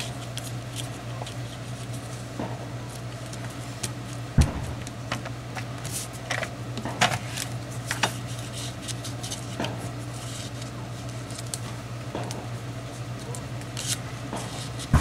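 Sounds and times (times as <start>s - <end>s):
steady low hum: 0.0s - 15.0s
sharp thump: 4.4s - 5.0s.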